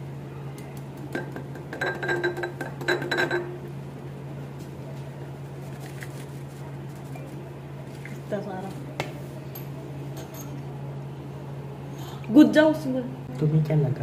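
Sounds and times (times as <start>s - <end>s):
glassware and bottle clinking: 1.2s - 3.6s.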